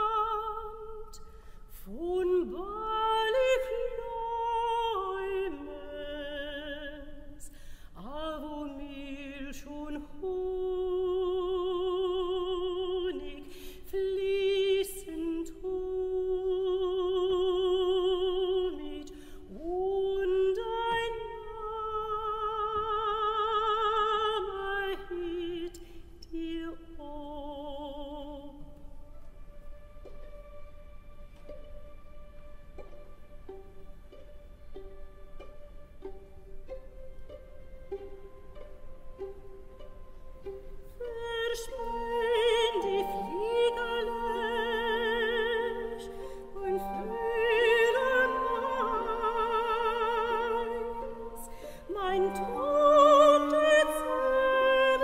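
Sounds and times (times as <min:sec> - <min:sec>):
soprano singing slow melody: 0:00.0 - 0:29.7, 0:36.7 - 0:55.0.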